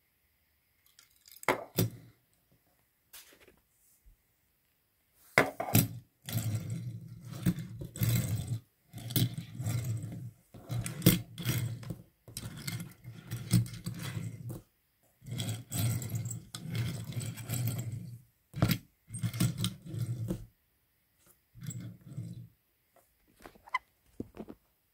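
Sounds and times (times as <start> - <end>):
toy van wheels rolling on tabletop: 5.6 - 20.5, 21.6 - 22.6.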